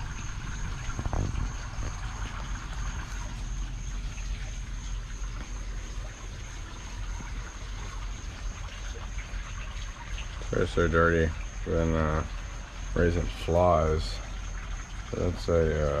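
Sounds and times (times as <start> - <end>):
pond water trickling: 0.0 - 16.0.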